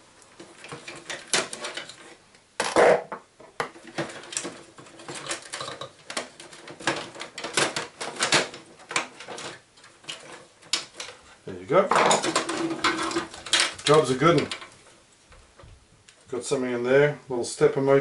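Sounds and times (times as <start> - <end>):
plastic printer parts cracking: 0.4 - 3.0, 3.6 - 11.2, 11.9 - 14.7.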